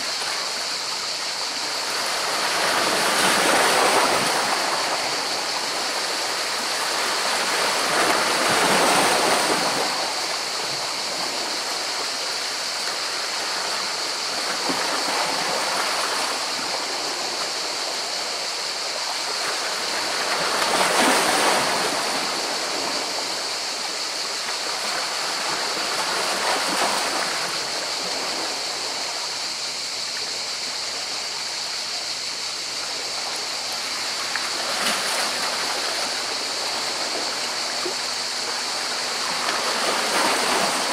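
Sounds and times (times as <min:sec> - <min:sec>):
sea waves breaking on rocks: 0:38.7 - 0:40.9.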